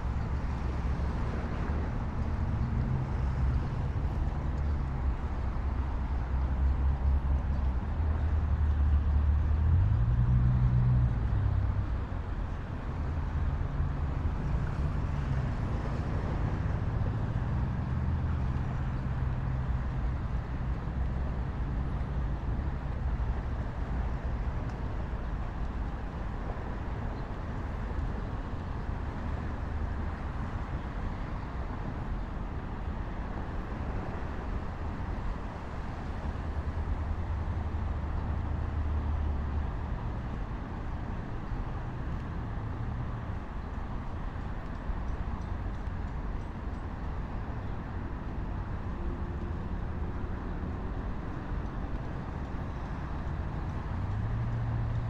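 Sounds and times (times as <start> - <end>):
highway traffic hum: 0.0 - 55.0.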